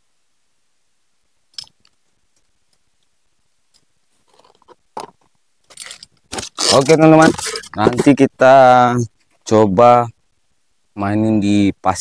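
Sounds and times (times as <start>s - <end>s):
parts set down on concrete: 4.4s - 6.6s.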